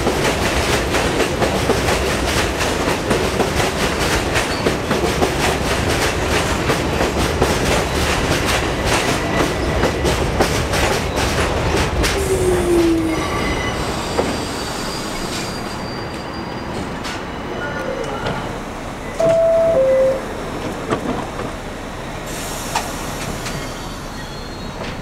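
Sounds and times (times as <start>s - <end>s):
train wheels clacking over rail joints: 0.0s - 13.0s
train brake squeal: 12.2s - 18.2s, 22.2s - 25.0s.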